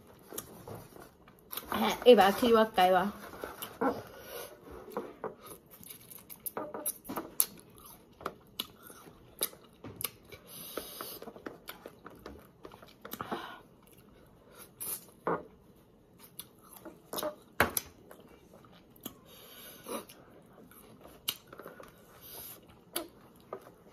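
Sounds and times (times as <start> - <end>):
chewing and lip-smacking: 5.4 - 15.2, 16.1 - 23.9.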